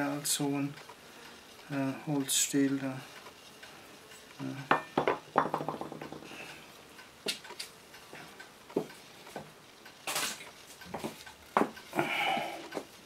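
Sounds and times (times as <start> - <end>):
metal tool clattering on wood: 4.7 - 6.3.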